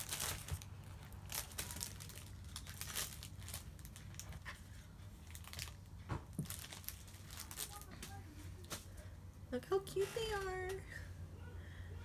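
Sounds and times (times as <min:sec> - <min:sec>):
plastic wrapper crinkling: 0:00.0 - 0:04.6, 0:05.2 - 0:08.8.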